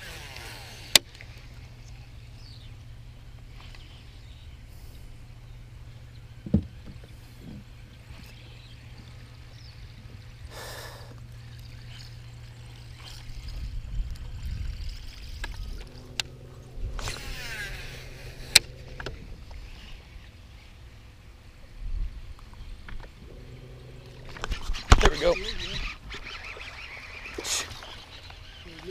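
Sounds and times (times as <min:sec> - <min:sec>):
electric trolling motor humming: 0:00.0 - 0:28.9
fishing reel spool whirring: 0:00.0 - 0:28.9
reel clicks: 0:11.1 - 0:19.6.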